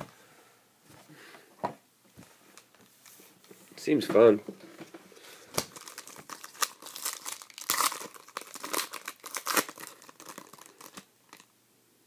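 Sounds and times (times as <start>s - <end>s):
foil wrapper crinkling and tearing: 5.5s - 11.5s.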